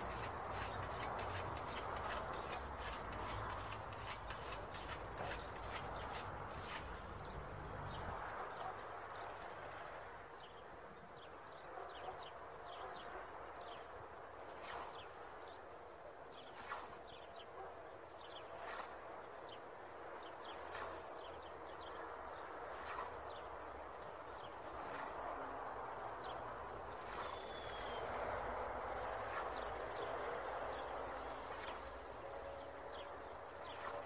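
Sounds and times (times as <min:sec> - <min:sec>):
small birds chirping: 0:16.3 - 0:28.4
scythe swishing through crop: 0:16.5 - 0:17.0, 0:22.7 - 0:23.2.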